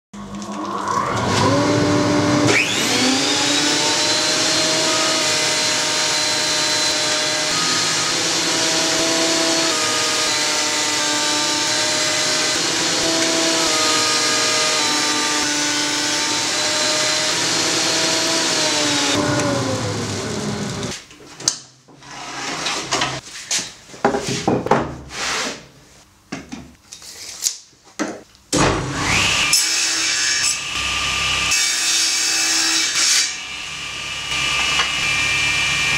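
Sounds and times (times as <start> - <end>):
dust extraction running: 0.2 - 21.0
table saw starting up: 0.2 - 21.0, 28.8 - 31.6
thickness planer motor whine: 0.2 - 21.0, 28.8 - 31.6, 32.4 - 35.9.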